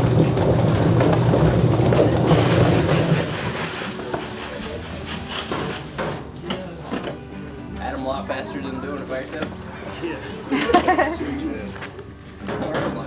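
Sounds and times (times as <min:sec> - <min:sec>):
low machine rumble: 0:00.0 - 0:03.9
water hissing from hose nozzle: 0:02.3 - 0:06.2.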